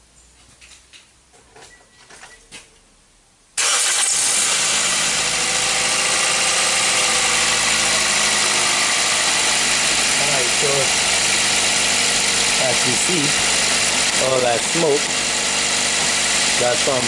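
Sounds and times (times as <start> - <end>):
car engine starting and running: 3.6 - 17.0.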